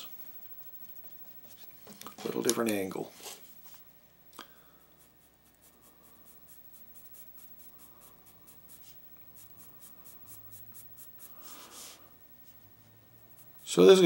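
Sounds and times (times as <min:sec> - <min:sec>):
pencil scratching on paper: 0:00.3 - 0:01.7, 0:04.8 - 0:14.0.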